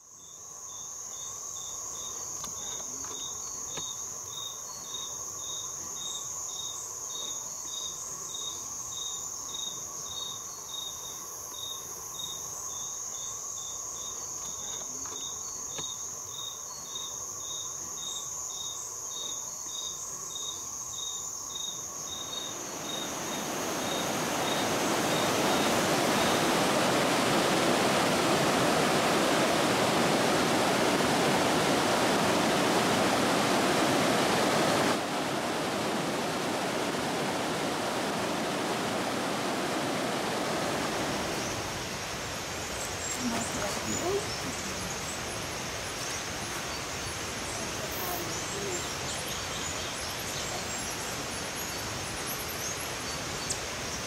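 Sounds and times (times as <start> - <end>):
insects buzzing and chirping: 0.0 - 54.0
mountain stream rushing: 22.2 - 54.0.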